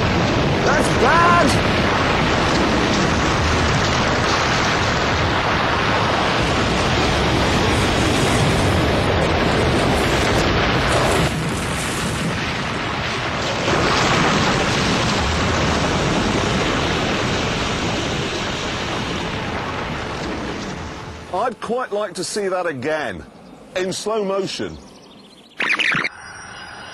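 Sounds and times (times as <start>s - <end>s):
train crash rumble and roar: 0.0s - 21.3s.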